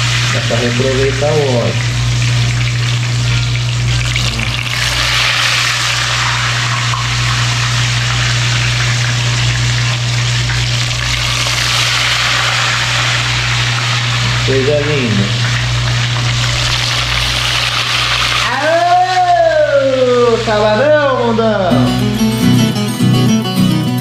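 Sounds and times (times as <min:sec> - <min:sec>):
fish sizzling in hot oil: 0:00.0 - 0:18.8.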